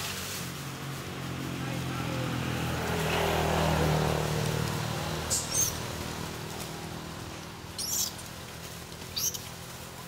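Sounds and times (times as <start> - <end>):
engine humming: 0.0 - 10.0
monkeys squealing: 5.3 - 5.8, 7.8 - 8.2, 9.2 - 9.4.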